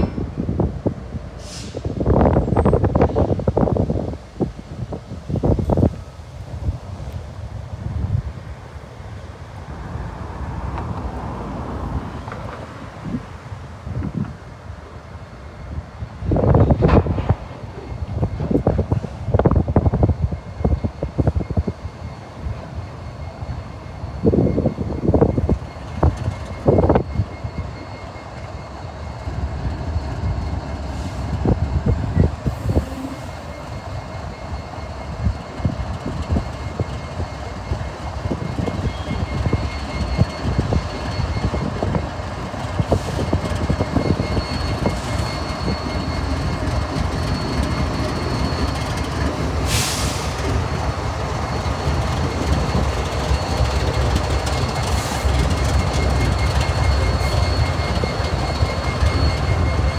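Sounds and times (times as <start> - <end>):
locomotive rumble: 0.0 - 59.9
brief hiss: 1.4 - 2.0.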